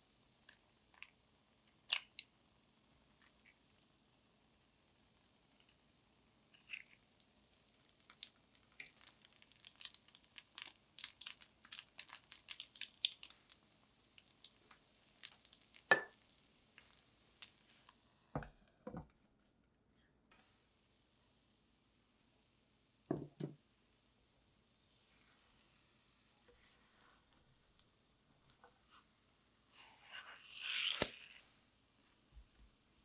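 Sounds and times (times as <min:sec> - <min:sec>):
batter crackling in pan: 0:05.2 - 0:18.4, 0:24.8 - 0:31.8
glass lid knocking on pan: 0:23.1 - 0:23.6.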